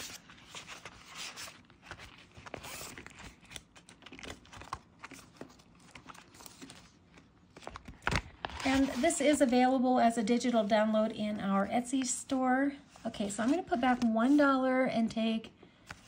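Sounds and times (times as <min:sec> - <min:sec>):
cards rustling in plastic pouch: 0:00.0 - 0:09.5
binder pages handled: 0:00.0 - 0:09.6, 0:12.9 - 0:14.5.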